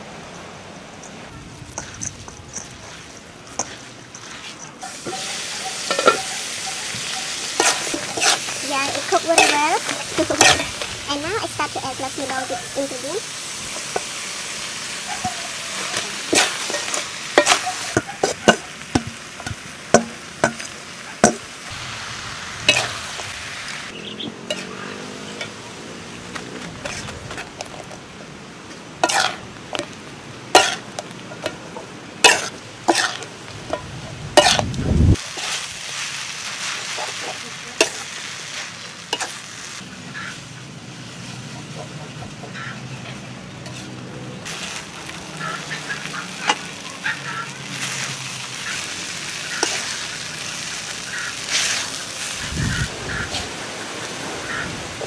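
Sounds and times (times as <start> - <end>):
food sizzling in a wok: 0.0 - 55.0
spatula clanking on wok: 1.8 - 12.7, 15.0 - 21.5, 22.7 - 23.3, 29.0 - 34.6, 49.6 - 50.0.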